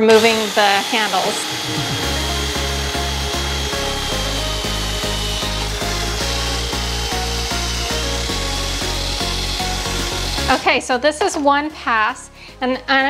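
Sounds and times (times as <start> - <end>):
cordless drill motor whine: 0.0 - 10.7
background music with steady beat: 0.0 - 13.0.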